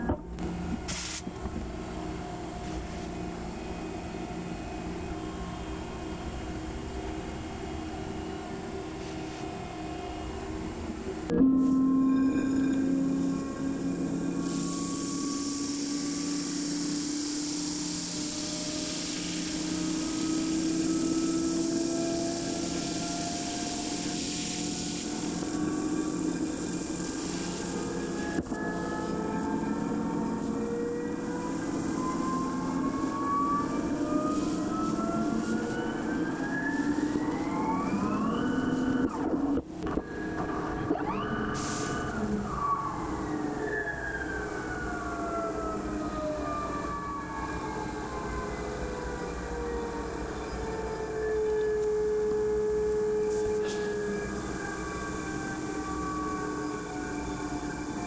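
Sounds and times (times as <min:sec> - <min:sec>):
machine spindle whine: 0:00.0 - 0:58.0
hiss of coolant spray: 0:00.9 - 0:01.2, 0:14.5 - 0:25.4.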